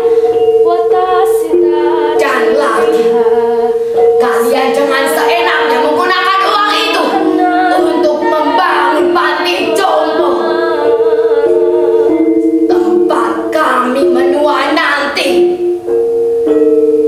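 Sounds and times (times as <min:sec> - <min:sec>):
woman singing: 0:00.0 - 0:15.7
held musical note: 0:00.0 - 0:17.0.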